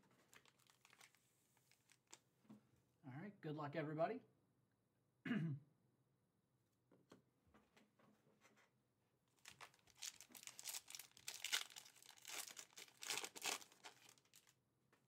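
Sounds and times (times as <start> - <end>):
foil wrapper crinkling: 0.0 - 2.2, 9.4 - 14.6.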